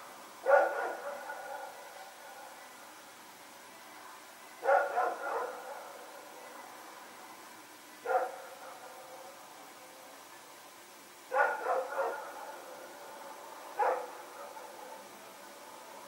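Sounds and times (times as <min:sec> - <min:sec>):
faint steady hum: 0:00.0 - 0:16.0
dog barking: 0:00.4 - 0:01.8, 0:04.6 - 0:05.9, 0:08.0 - 0:09.3, 0:11.3 - 0:12.7, 0:13.8 - 0:15.1.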